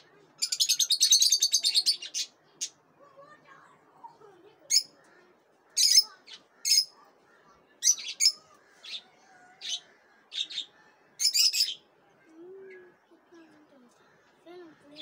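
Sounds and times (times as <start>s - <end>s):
lovebirds chirping: 4.6s - 15.0s.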